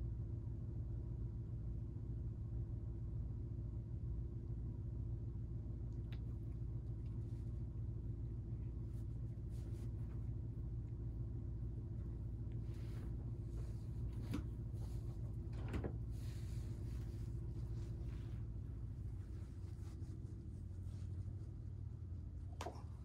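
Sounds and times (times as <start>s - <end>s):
low electrical hum: 0.0s - 23.0s
faint rustles: 6.0s - 23.0s.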